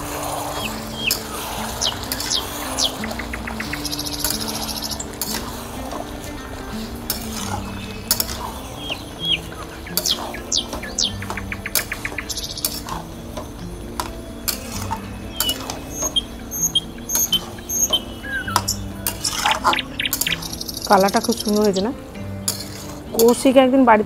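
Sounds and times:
metal spatula scraping pan: 0.0 - 10.5, 12.6 - 13.1, 14.0 - 18.0, 22.4 - 23.3
birds chirping: 0.0 - 24.0
soft background music: 0.0 - 24.0.

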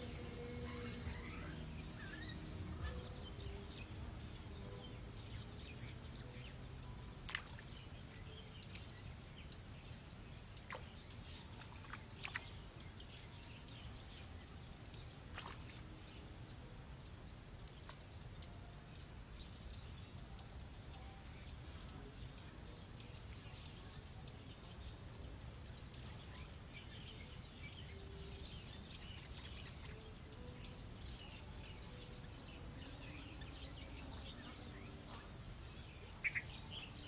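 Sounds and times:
low steady rumble: 0.0 - 37.0.

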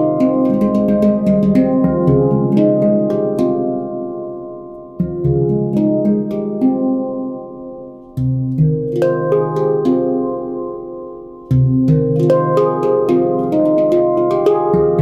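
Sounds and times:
deep handpan bass note: 0.0 - 15.0
higher handpan notes tapped: 0.0 - 15.0.

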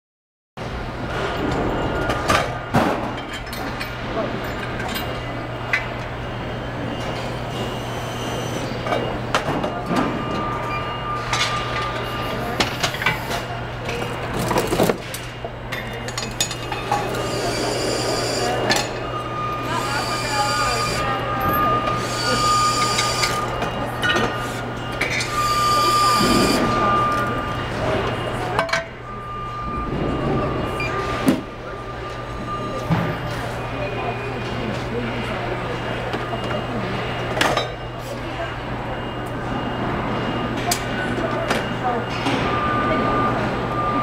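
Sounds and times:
machinery hum: 0.6 - 44.0
clanks of parts and tools: 1.5 - 6.1, 8.8 - 17.5
thin steady whine: 15.7 - 44.0
machine hum: 16.5 - 32.8.

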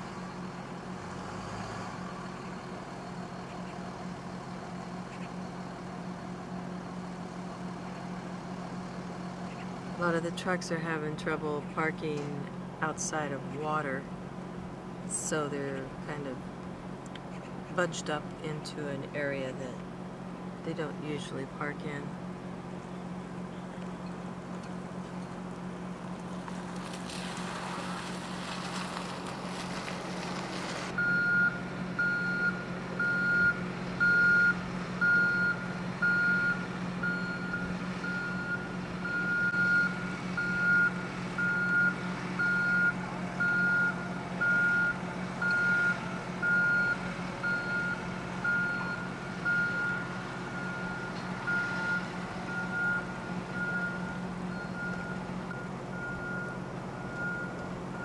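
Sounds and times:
steady low hum: 2.0 - 58.0
truck reversing alarm beeping: 30.9 - 58.0.

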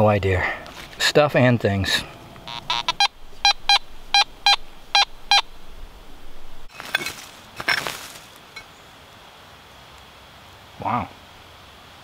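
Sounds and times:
metal detector beeps: 2.5 - 5.5
clicks and rustles: 6.7 - 8.7.

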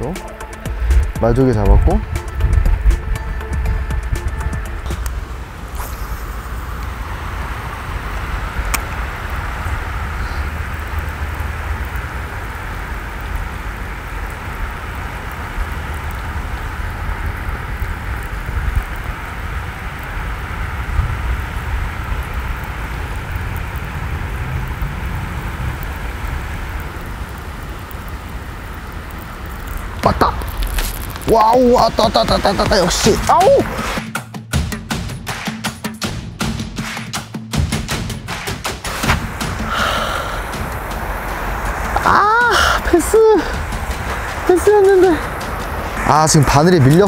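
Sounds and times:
low rumble: 0.0 - 34.0, 38.8 - 47.0
rain falling on water: 0.0 - 34.0, 37.6 - 47.0.

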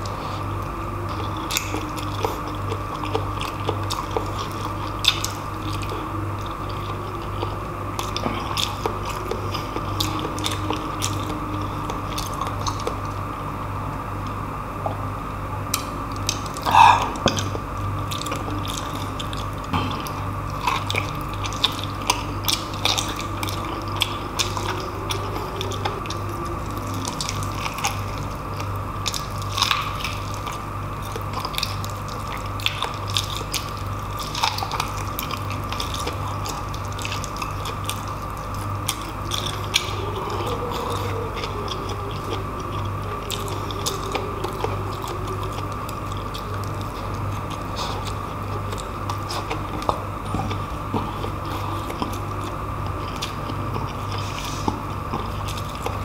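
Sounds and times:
wet chewing and lip-smacking: 0.0 - 13.3, 15.6 - 56.0
steady background hum: 0.0 - 56.0.

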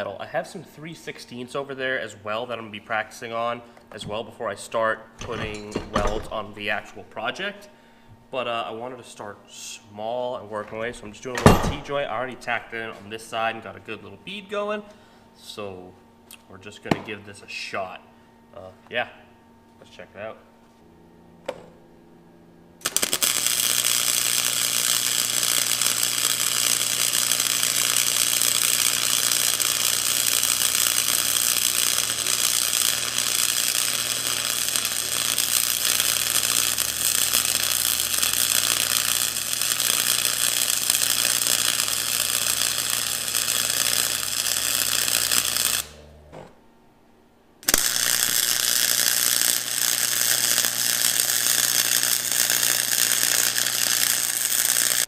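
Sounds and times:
welding arc crackling sizzle: 0.0 - 7.7, 10.8 - 14.4, 22.8 - 46.2, 47.6 - 55.0
low hum: 28.9 - 48.4.

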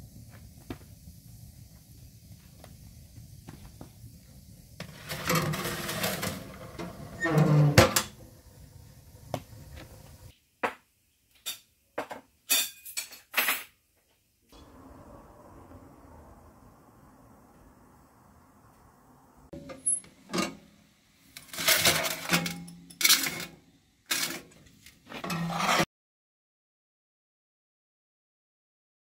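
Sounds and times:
stove door scraping and squeaking: 4.8 - 8.2, 21.4 - 25.9.

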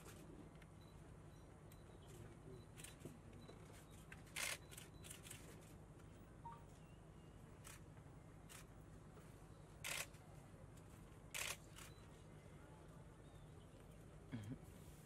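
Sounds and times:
camera shutters clicking: 4.4 - 5.4, 9.8 - 10.1, 11.4 - 11.9.

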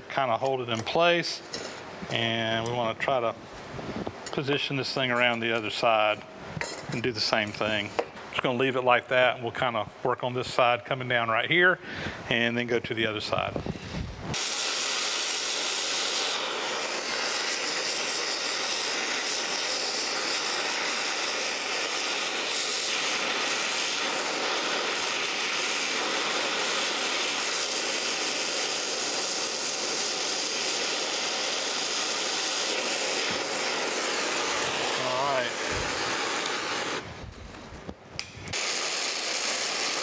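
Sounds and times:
torch flame hissing: 11.8 - 40.0.

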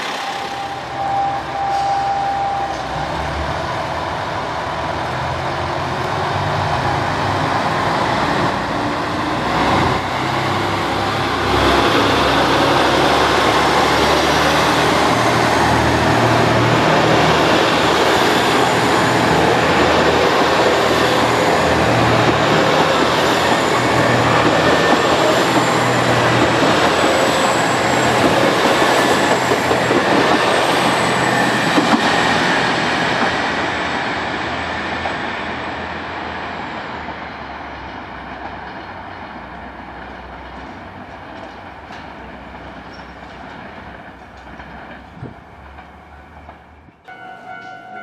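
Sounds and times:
train running along track: 0.0 - 48.0.

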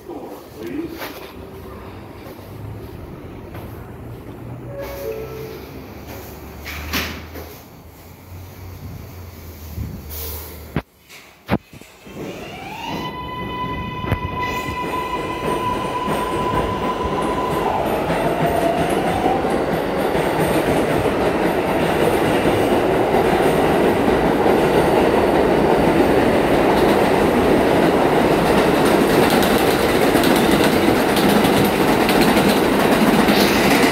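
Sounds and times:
subway train motors whining: 0.0 - 33.9
train wheels clattering on rails: 14.2 - 33.9.

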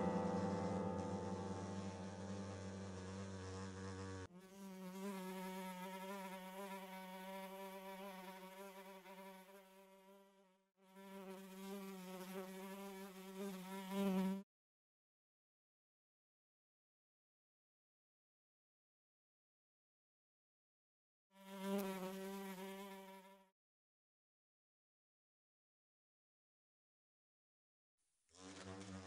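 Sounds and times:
fly buzzing: 0.0 - 14.4, 21.4 - 23.5, 28.3 - 29.0.

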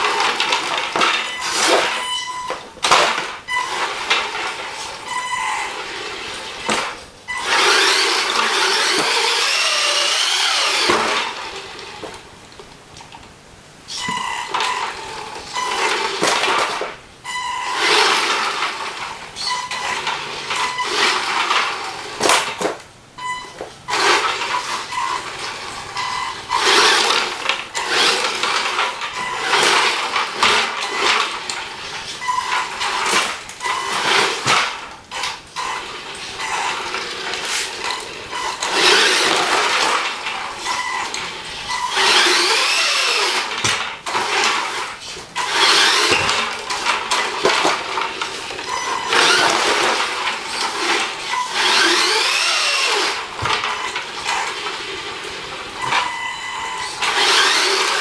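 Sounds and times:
electric motor whining: 5.4 - 12.1, 23.9 - 31.3, 35.6 - 47.0, 47.8 - 58.0.

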